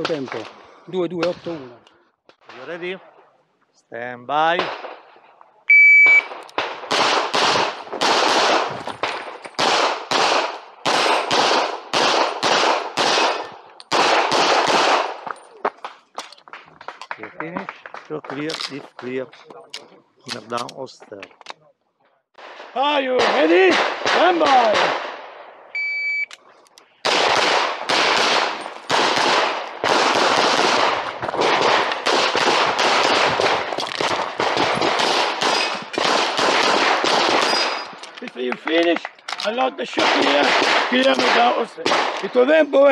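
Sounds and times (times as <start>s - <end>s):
shot timer beep: 5.7s - 6.3s, 25.8s - 26.3s
pistol shots: 6.0s - 16.0s, 22.4s - 25.5s, 27.0s - 38.0s, 39.9s - 42.5s.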